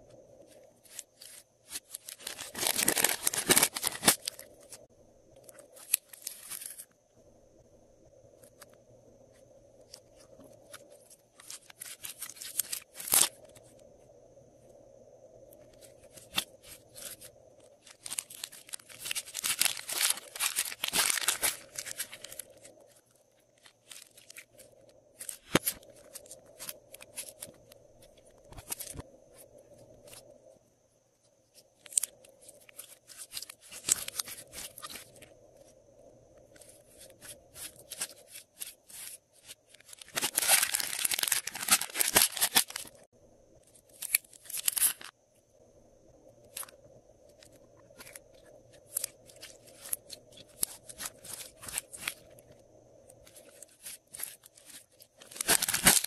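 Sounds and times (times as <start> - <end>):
plastic bags of slime crackling: 0.9 - 4.9, 11.4 - 13.4, 16.2 - 23.0, 23.6 - 27.6, 36.6 - 43.1, 48.8 - 52.4, 53.3 - 56.0.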